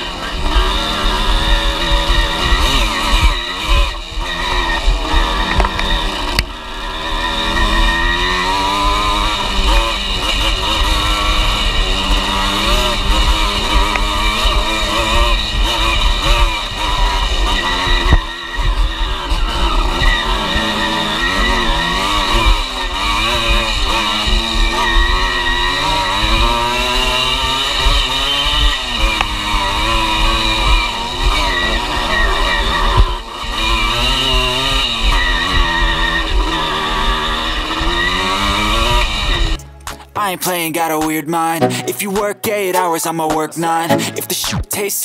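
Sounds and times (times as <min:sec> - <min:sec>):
dirt bike engine revving: 0:00.0 - 0:44.9
sharp tick: 0:39.6 - 0:40.1.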